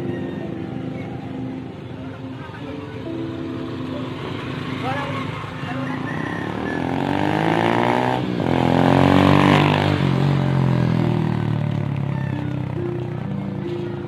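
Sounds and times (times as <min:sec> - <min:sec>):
vehicle engine speeding up: 0:04.0 - 0:12.1.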